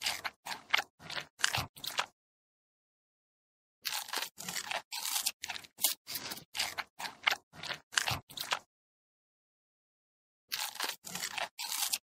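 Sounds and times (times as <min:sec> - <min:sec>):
red panda crunching food: 0:00.0 - 0:02.2, 0:03.8 - 0:08.7, 0:10.5 - 0:12.0.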